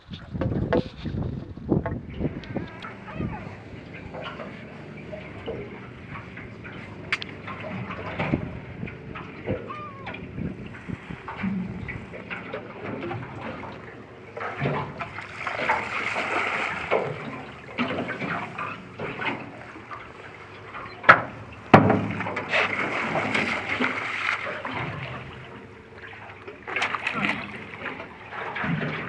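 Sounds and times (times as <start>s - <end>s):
water splashing and sloshing: 0.0s - 29.0s
sharp knocks: 21.1s - 22.3s.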